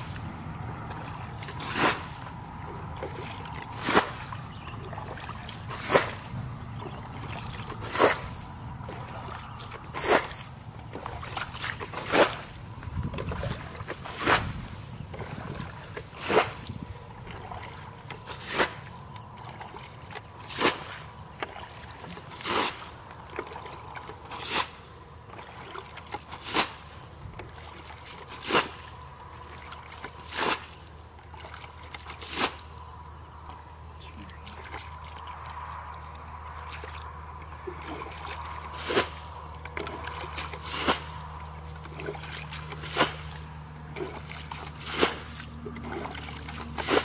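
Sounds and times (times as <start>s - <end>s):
bucket scooping water: 0.0s - 47.0s
splash of thrown water: 1.4s - 2.3s, 3.1s - 4.4s, 5.7s - 6.4s, 20.5s - 21.0s, 32.0s - 32.7s, 37.9s - 41.2s, 42.0s - 43.4s, 44.0s - 47.0s.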